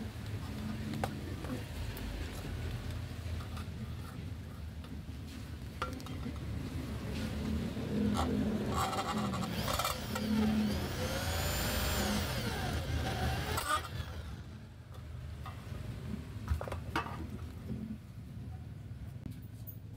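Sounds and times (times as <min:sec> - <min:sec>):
electric drill boring into metal: 0:08.7 - 0:14.5.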